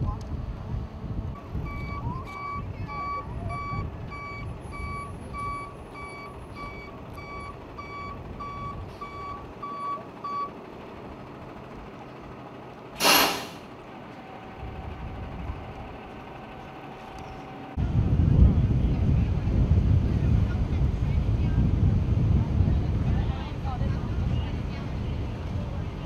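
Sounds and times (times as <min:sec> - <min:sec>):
low engine rumble: 0:00.0 - 0:26.0
vehicle back-up alarm beeping: 0:01.3 - 0:12.4
air brake hiss: 0:13.0 - 0:13.7.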